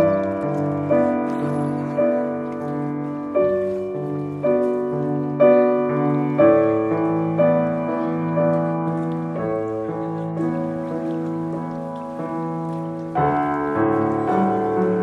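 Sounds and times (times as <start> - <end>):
slow piano music: 0.0 - 15.0.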